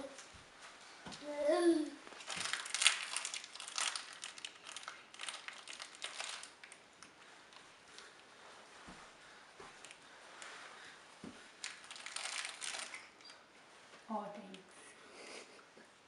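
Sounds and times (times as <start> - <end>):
toddler babbling: 1.2 - 2.0
plastic wrapper crinkling: 2.1 - 6.8, 11.6 - 13.4.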